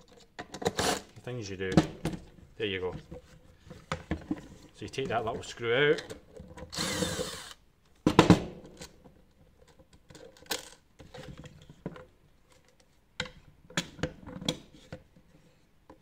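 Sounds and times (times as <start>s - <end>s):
cordless drill running: 6.7s - 7.6s.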